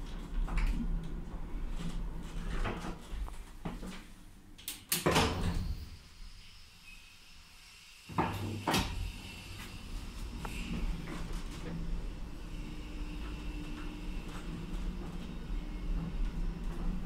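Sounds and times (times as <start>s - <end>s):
low lift hum: 9.0s - 17.0s.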